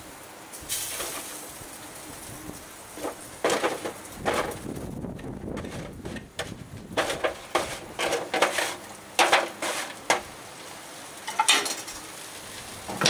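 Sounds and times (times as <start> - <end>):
tongs scraping foil tray: 5.6 - 10.3.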